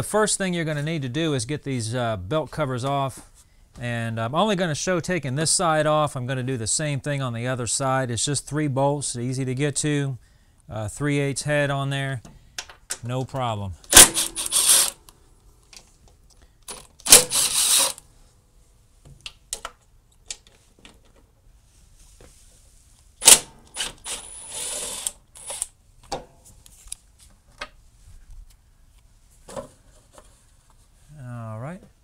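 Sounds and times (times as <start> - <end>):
cordless drill whirring: 14.2 - 15.0, 17.1 - 18.0, 23.8 - 25.7.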